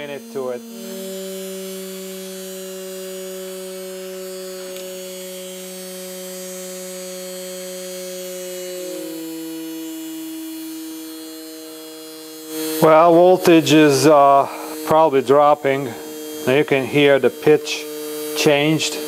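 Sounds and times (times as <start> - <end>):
small electric motor humming: 0.0 - 19.0.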